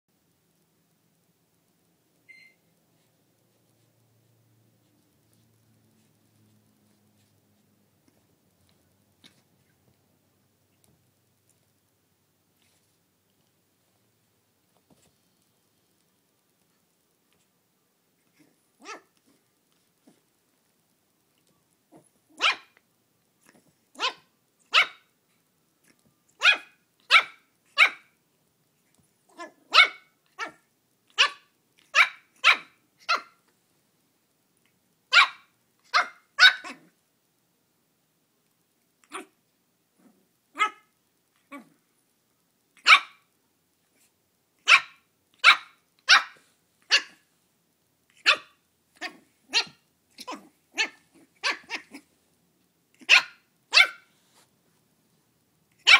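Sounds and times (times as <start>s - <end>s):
puppy yapping: 18.4s - 19.2s, 21.9s - 22.8s, 24.0s - 25.1s, 26.4s - 28.1s, 29.3s - 33.4s, 35.1s - 36.9s, 40.6s - 40.9s, 42.8s - 43.2s, 44.6s - 47.2s, 48.1s - 52.0s, 53.0s - 54.1s.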